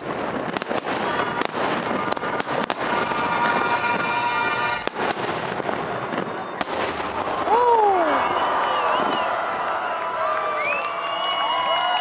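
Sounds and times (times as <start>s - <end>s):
firework bangs and crackles: 0.0s - 12.0s.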